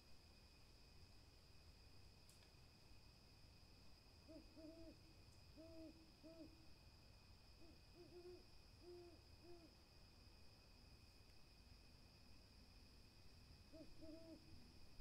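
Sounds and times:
owl hooting low coos: 4.2s - 6.7s, 7.6s - 9.7s, 13.7s - 14.6s.

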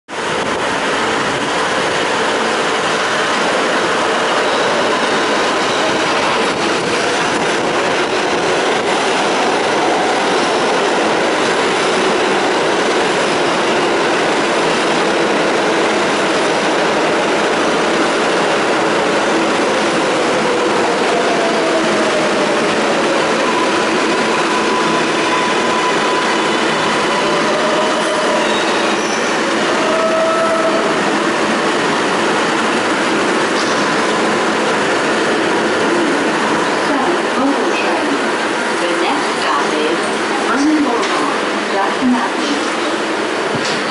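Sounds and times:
train wheels rumbling on rail: 0.1s - 43.9s
train braking whine: 21.0s - 31.2s.

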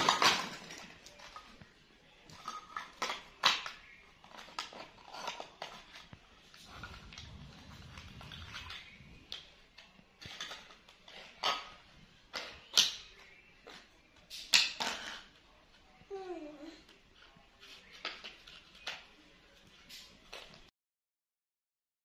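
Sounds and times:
plastic dishes clicking and clattering: 0.0s - 1.6s, 2.3s - 7.2s, 8.0s - 15.4s
soft rustle: 4.2s - 11.3s.

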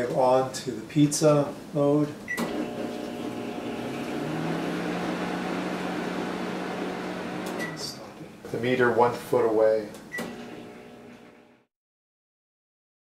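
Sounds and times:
microwave oven hum: 2.3s - 8.0s, 10.1s - 11.7s.

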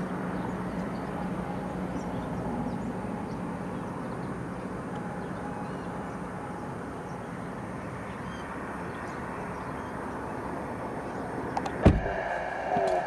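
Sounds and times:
outdoor background noise: 0.0s - 13.0s
sharp knock: 11.8s - 12.2s.

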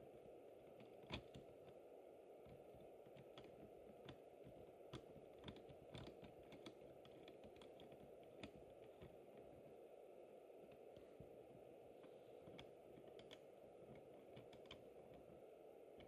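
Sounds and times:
low steady hiss: 0.0s - 16.0s
small mechanical clicks: 12.4s - 15.2s.

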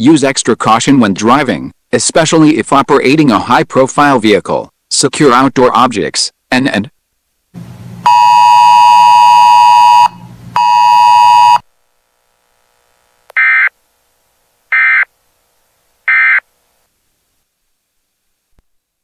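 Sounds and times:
digital data tone bursts: 8.1s - 11.6s.

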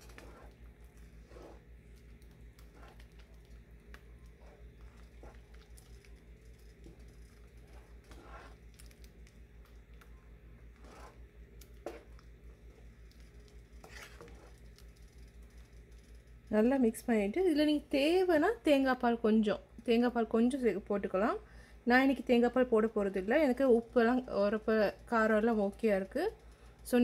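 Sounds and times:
wooden spoon stirring thick food: 0.0s - 15.8s
low steady hum: 0.0s - 27.0s.

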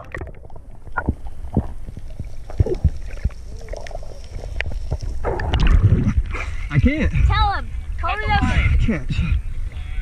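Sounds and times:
bubbling pops and clicks: 0.0s - 4.0s, 4.6s - 6.2s
underwater rumble of moving water: 0.0s - 9.8s.

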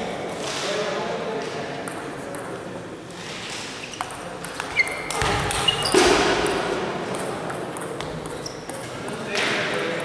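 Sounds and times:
table tennis ball bouncing: 1.8s - 2.6s, 4.0s - 10.0s.

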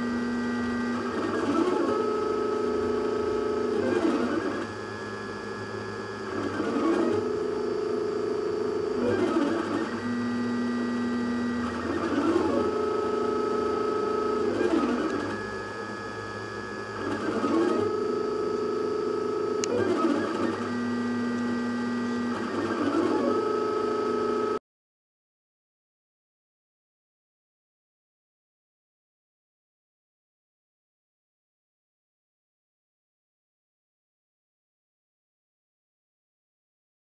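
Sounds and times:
stepper motors whining: 0.0s - 24.6s.

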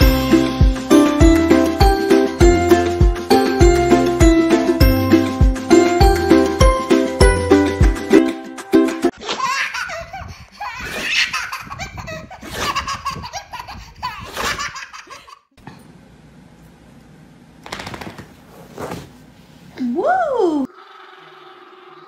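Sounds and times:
baby giggling and laughing: 9.2s - 15.5s.

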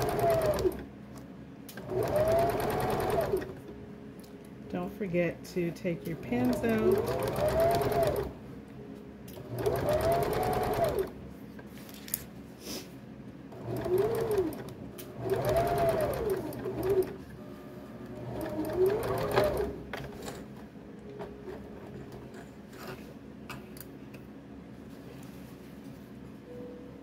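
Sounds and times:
sewing machine stitching: 0.0s - 0.8s, 1.8s - 3.6s, 6.2s - 8.4s, 9.4s - 11.1s, 13.6s - 17.2s, 18.2s - 20.1s.

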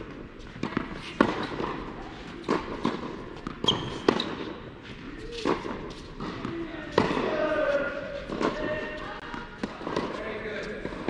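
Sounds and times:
balls bouncing on hard court: 0.0s - 11.0s
racket hitting tennis balls: 0.0s - 11.0s
sneaker squeak: 3.4s - 4.6s.

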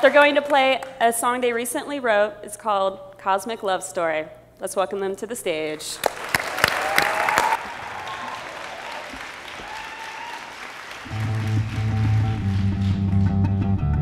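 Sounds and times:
audience applauding: 6.0s - 13.3s.

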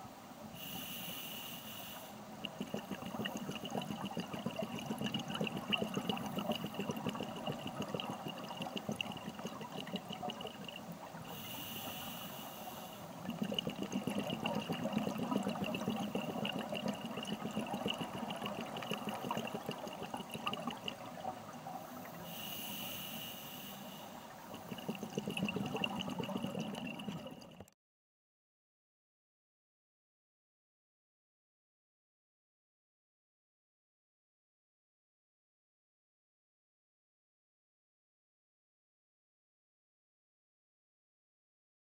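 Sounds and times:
hissing regulator inhalation: 0.6s - 21.0s, 21.8s - 27.4s
bubbling underwater exhalation: 2.4s - 23.7s, 24.3s - 27.7s.

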